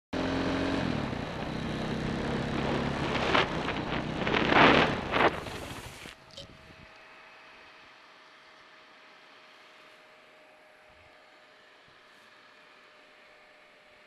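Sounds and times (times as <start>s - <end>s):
dirt bike engine running: 0.2s - 6.9s.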